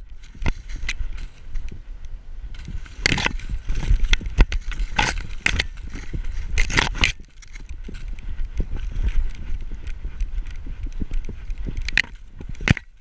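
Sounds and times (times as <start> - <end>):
dry corn leaves crackling and scraping: 0.0 - 1.8, 2.4 - 10.4.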